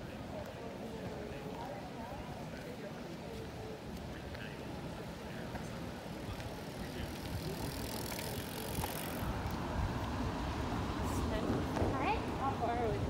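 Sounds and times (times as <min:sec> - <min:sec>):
busy park noise: 0:00.0 - 0:13.0
wind rumble on microphone: 0:06.2 - 0:13.0.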